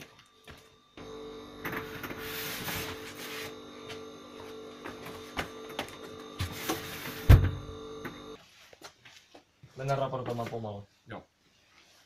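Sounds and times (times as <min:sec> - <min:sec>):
machinery hum: 0:00.0 - 0:08.4
rustling and shuffling: 0:01.8 - 0:07.3, 0:08.3 - 0:12.0.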